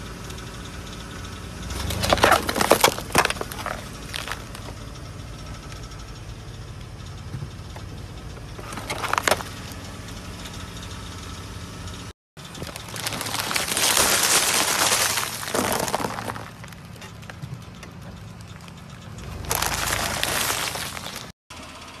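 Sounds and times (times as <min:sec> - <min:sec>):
car engine idling: 0:00.0 - 0:22.0
tyre crushing something brittle: 0:01.8 - 0:04.8, 0:08.6 - 0:09.8, 0:12.6 - 0:16.8, 0:19.4 - 0:21.3.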